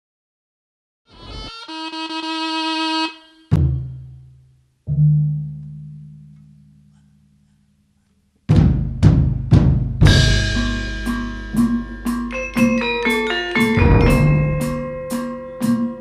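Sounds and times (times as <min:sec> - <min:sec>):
deep booming drum strike: 0:08.5 - 0:12.3, 0:13.8 - 0:15.2
heavy drum hits: 0:08.5 - 0:16.0
ringing pitched notes: 0:10.1 - 0:16.0.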